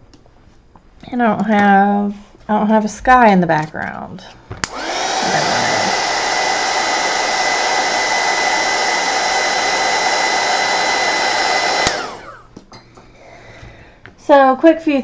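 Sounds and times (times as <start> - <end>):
heat gun switch click: 4.6 - 4.8, 11.8 - 12.1
heat gun blowing with motor whine: 4.6 - 13.8.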